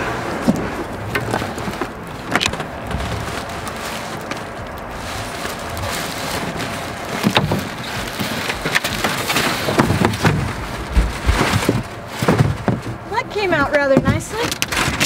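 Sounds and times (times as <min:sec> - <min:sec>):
cardboard and foam scraping: 0:00.0 - 0:15.0
plastic wrap rustling: 0:00.3 - 0:15.0
sharp cracks and knocks: 0:00.4 - 0:13.0, 0:14.0 - 0:15.0.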